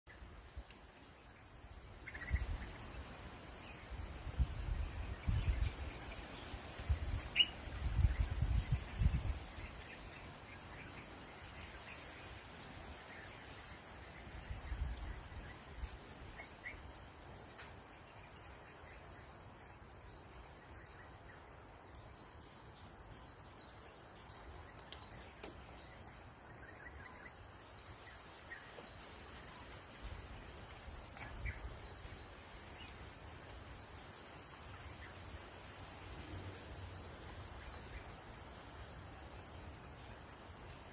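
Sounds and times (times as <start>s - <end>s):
light ticks: 7.2s - 10.2s, 20.8s - 26.9s.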